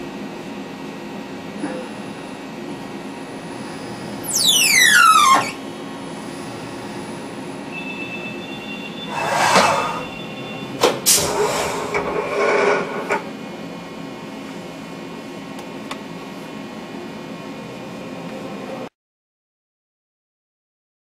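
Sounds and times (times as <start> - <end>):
spindle whine: 1.6 - 10.8.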